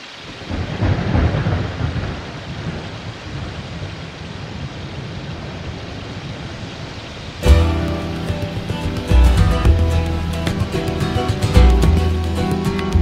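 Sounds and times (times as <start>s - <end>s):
heavy rain falling: 0.0s - 13.0s
thunder rumble: 0.3s - 9.8s.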